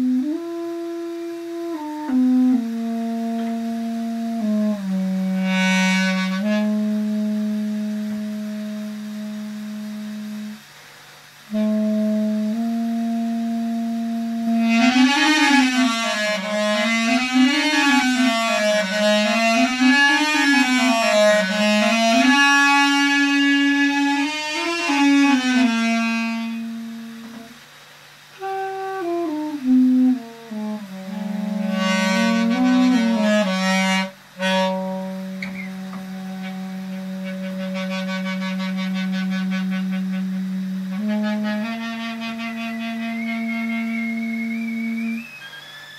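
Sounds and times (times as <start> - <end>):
duduk playing slow melody: 0.0 - 10.7, 11.5 - 27.6, 28.4 - 45.6
steady low drone: 28.4 - 45.2.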